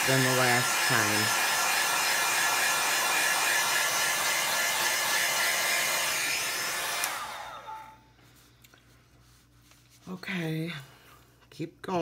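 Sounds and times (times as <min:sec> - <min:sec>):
hot-air blower running: 0:00.0 - 0:08.0.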